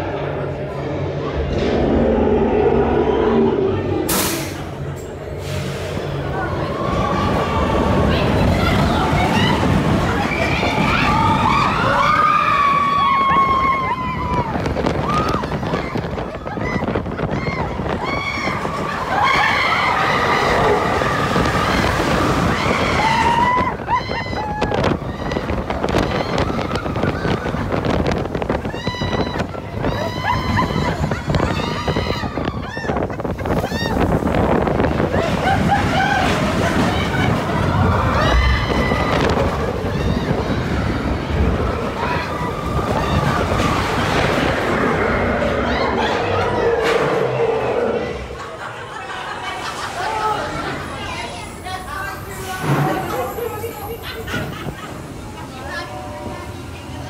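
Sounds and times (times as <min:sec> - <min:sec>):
wind buffeting microphone: 0:00.0 - 0:49.8
roller coaster train rumbling: 0:00.0 - 0:57.0
riders screaming and whooping: 0:06.3 - 0:51.6.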